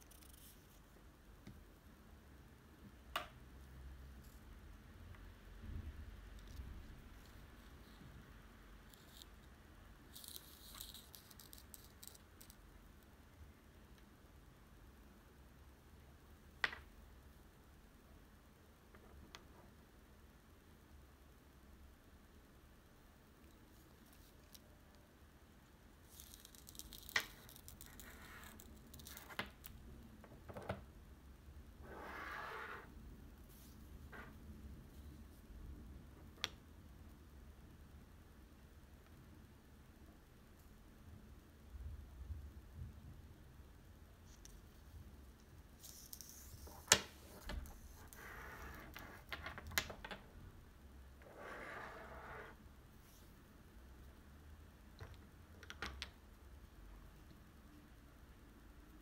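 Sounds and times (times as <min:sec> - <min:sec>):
cord rustling through bead: 0:00.0 - 0:01.0, 0:08.8 - 0:12.6, 0:23.4 - 0:24.8, 0:26.0 - 0:30.0, 0:44.2 - 0:50.5.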